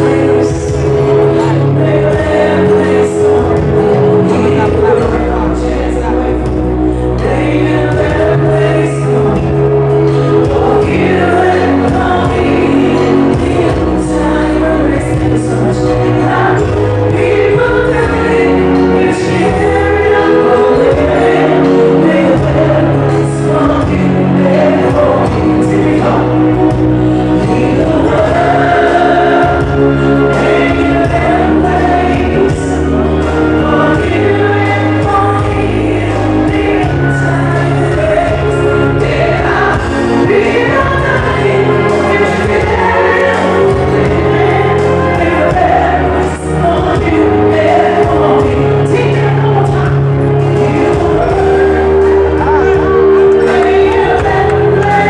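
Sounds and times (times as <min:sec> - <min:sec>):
bass line: 0:00.0 - 0:55.0
loud live music with singing: 0:00.0 - 0:55.0.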